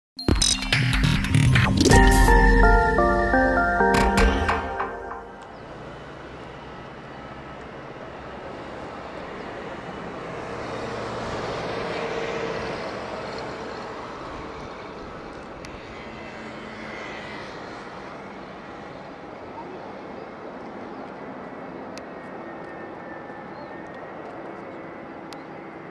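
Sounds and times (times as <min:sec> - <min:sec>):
jet engines rushing with high whine: 0:05.3 - 0:25.9.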